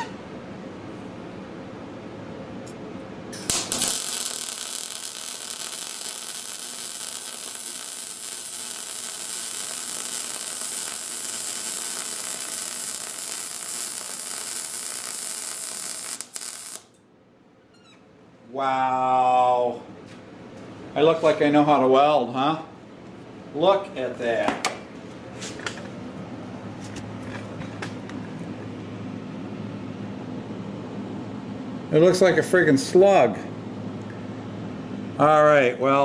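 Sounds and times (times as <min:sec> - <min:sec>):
welding arc crackling hiss: 0:03.4 - 0:17.0.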